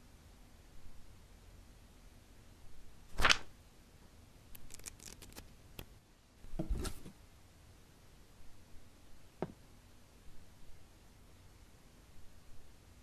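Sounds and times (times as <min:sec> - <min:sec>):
paper booklet rustling: 0:03.2 - 0:03.5, 0:04.6 - 0:05.5.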